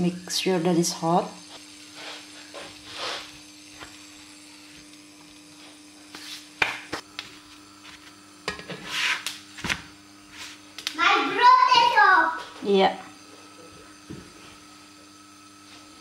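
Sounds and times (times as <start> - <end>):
short scraping hiss: 1.9 - 3.4.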